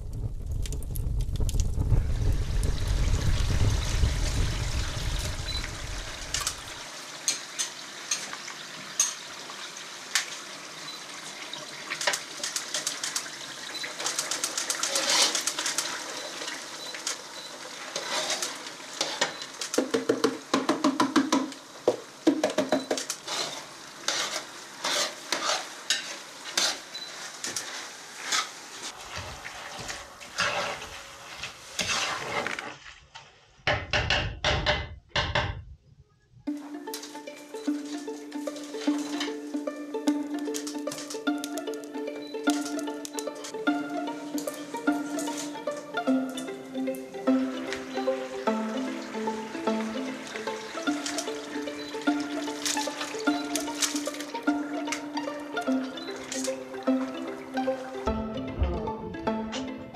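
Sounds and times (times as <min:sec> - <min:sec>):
low rumble: 0:00.0 - 0:06.8
vegetables sizzling in a pot: 0:00.0 - 0:33.1, 0:36.5 - 0:58.1
spoon scraping a metal pot: 0:14.7 - 0:15.8, 0:18.0 - 0:19.4, 0:23.3 - 0:27.0, 0:29.7 - 0:32.6.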